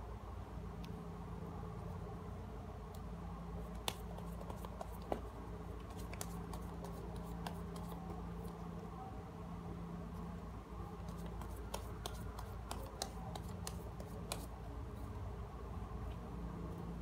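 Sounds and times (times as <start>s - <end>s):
steady low hum: 0.0s - 17.0s
cards clicking and tapping: 3.7s - 8.6s, 11.0s - 14.5s.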